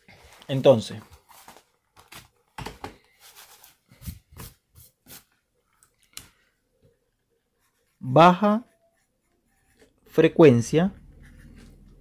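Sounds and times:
notebook page rustling: 0:00.1 - 0:05.4.

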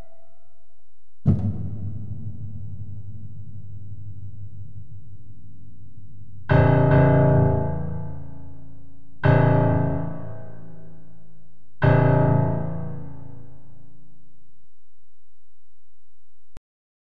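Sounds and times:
heavy low piano chords: 0:00.0 - 0:13.9.

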